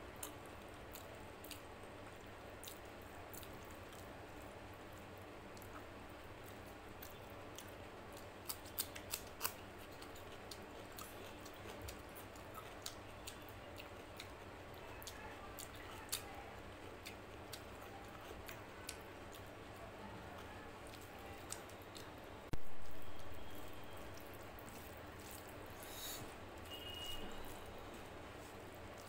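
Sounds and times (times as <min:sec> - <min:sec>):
close chewing: 0:00.2 - 0:01.7, 0:05.6 - 0:22.2, 0:24.1 - 0:26.3, 0:28.4 - 0:29.0.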